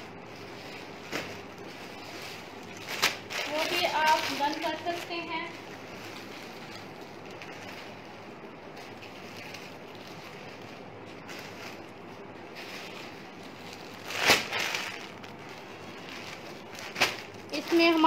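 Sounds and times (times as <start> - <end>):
room noise: 0.0 - 18.0.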